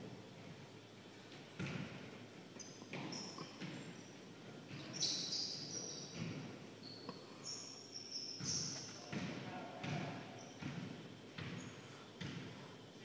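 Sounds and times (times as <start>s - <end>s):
basketball bouncing: 1.6s - 2.1s, 2.9s - 4.0s, 6.1s - 6.5s, 8.4s - 12.6s
shoes squeaking on gym floor: 1.6s - 13.0s.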